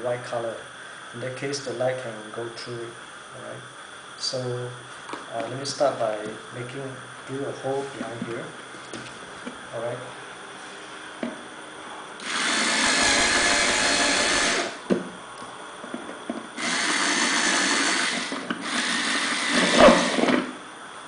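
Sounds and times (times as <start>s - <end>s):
cordless drill boring plastic: 12.2s - 14.8s, 16.6s - 20.6s.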